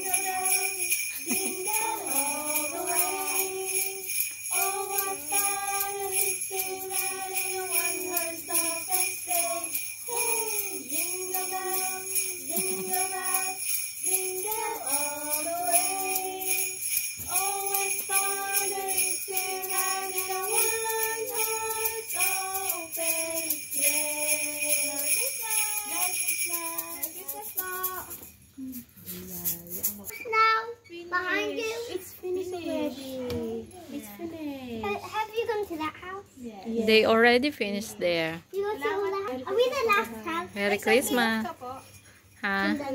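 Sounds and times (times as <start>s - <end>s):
carolers singing: 0.0s - 27.9s
jingle rattle shaken: 0.0s - 30.1s, 39.6s - 42.9s.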